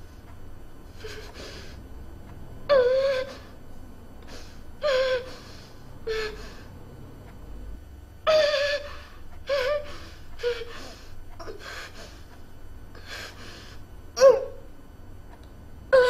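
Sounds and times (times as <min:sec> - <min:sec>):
woman sobbing: 0:08.3 - 0:12.0.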